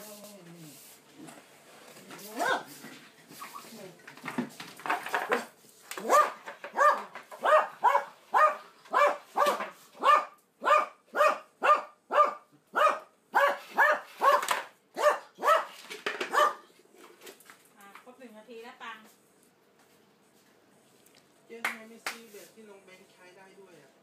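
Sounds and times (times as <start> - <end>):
small dog barking: 6.0 - 16.7.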